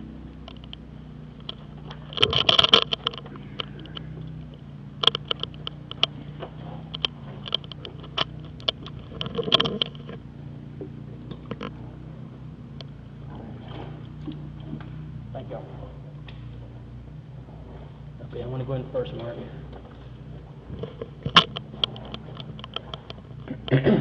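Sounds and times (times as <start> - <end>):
low machine hum: 0.0 - 24.0
scraping and knocks of climbing: 1.4 - 12.2, 17.4 - 24.0.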